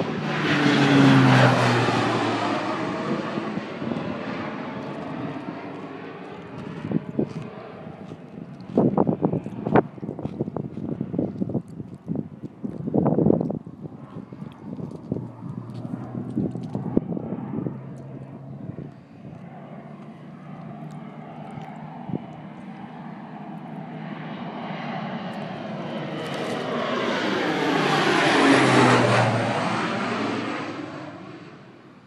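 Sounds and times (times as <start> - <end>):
propeller plane flyover: 0.0 - 32.0.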